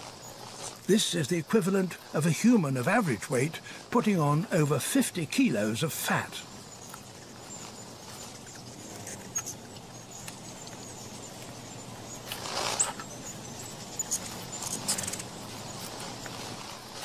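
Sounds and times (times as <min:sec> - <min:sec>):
hummingbirds chipping and squeaking: 0:00.0 - 0:17.0
steady hiss: 0:00.0 - 0:17.0.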